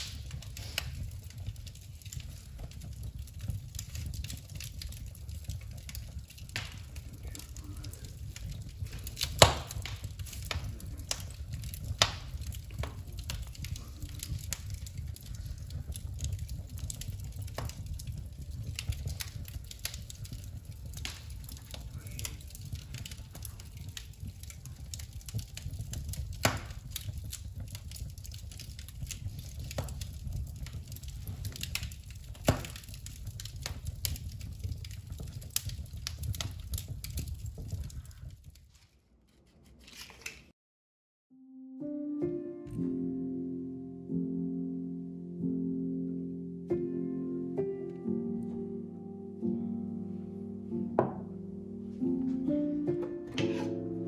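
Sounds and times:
fire pops and snaps: 0.0 - 39.0, 39.6 - 40.6
wood fire crackling: 0.0 - 40.6, 44.4 - 54.0.

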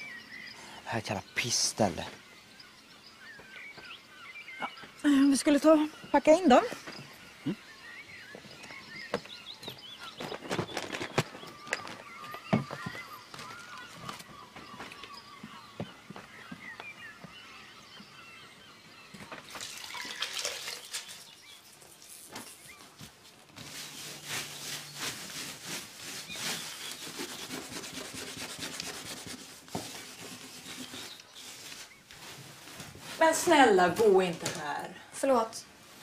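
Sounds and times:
birds singing: 0.0 - 36.0
cloth scrubbing a floor: 23.6 - 33.2.

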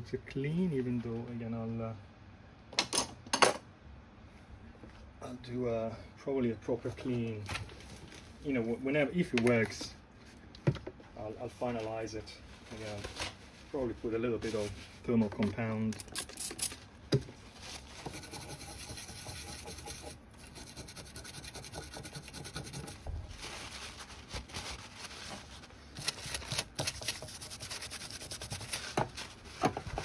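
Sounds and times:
brush rubbing on paper towel: 17.5 - 30.0
brush scrubbing circuit board: 18.0 - 23.0, 26.7 - 28.9.

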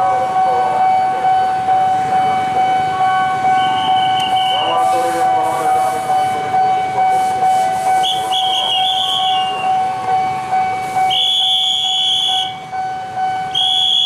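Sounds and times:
level crossing warning bell ringing: 0.0 - 14.0
train whistle blasts: 7.1 - 9.8, 10.8 - 12.6, 13.5 - 14.0.

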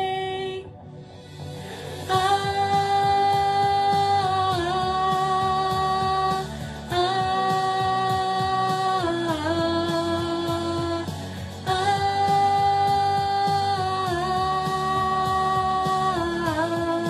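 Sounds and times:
backing track with steady beat: 0.0 - 17.0
singer breathing: 0.9 - 2.8, 6.4 - 6.9, 11.1 - 11.6.

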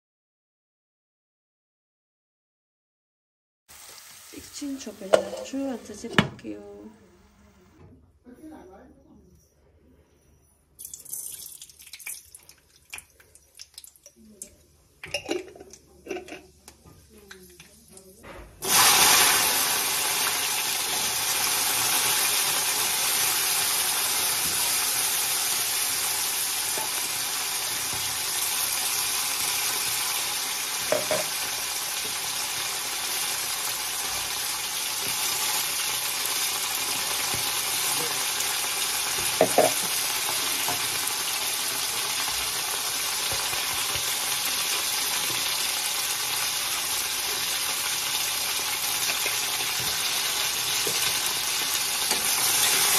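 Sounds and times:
food sizzling in hot oil: 3.7 - 6.4, 10.8 - 14.1, 17.3 - 52.9.

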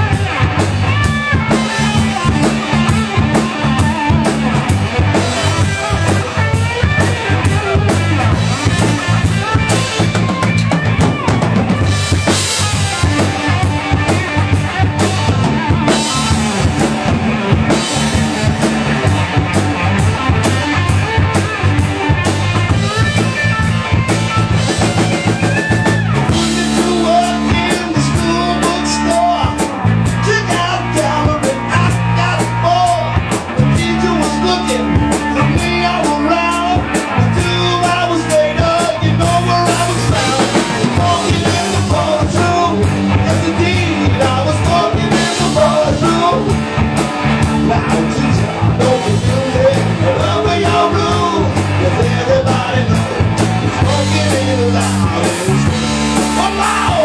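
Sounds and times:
drum kit beat: 0.0 - 57.0
live rock band playing: 0.0 - 57.0
person singing: 25.4 - 46.6, 47.5 - 57.0.

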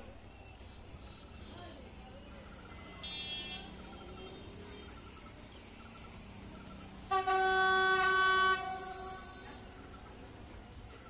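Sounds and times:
train air horn blast: 7.1 - 9.8.

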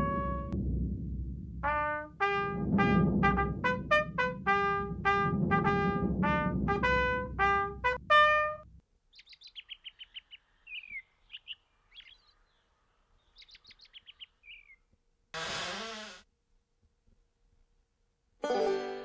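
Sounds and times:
brass music phrase: 0.0 - 0.7, 1.6 - 8.8
sudden loud burst: 0.0 - 8.7
small birds chirping and trilling: 9.1 - 14.9.

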